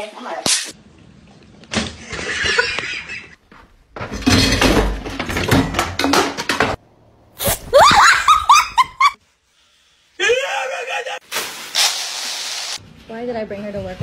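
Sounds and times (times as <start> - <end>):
kitchen things clattering: 4.0 - 6.8.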